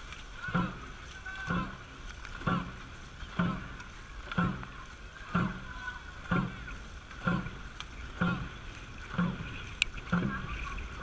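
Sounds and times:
paddles splashing: 0.0 - 11.0
water rushing past hull: 0.0 - 11.0.

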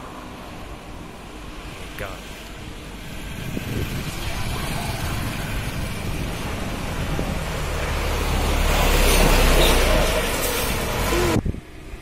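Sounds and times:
wind rumbling on microphone: 2.6 - 12.0
motor scooter passing: 3.3 - 11.4.

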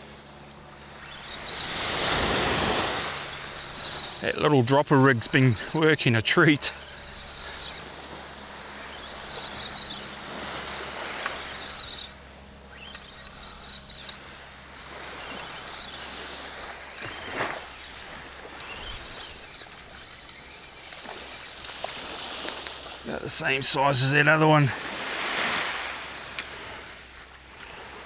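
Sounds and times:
waves washing on beach: 0.8 - 28.0
faint high chirping: 11.4 - 14.2.

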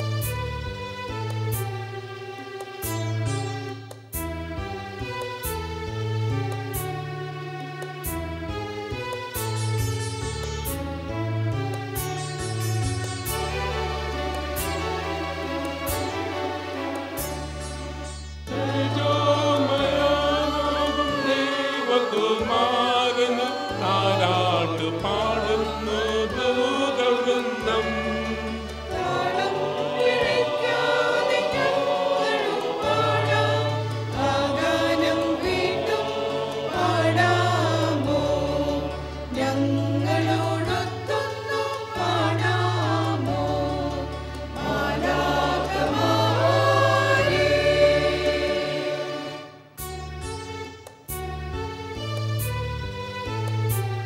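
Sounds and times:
instrumental accompaniment with bass notes: 0.0 - 54.0
mixed choir singing a hymn: 18.5 - 49.6.

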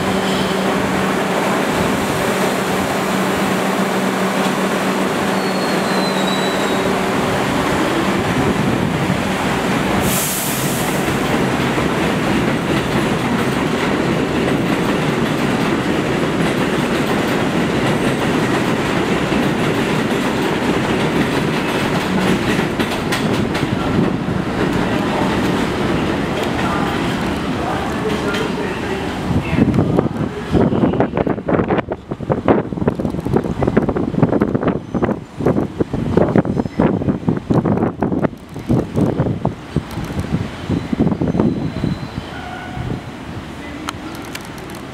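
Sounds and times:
train hum: 0.0 - 44.9
short hiss: 10.0 - 11.0
wheels clattering on rails: 10.9 - 30.2.

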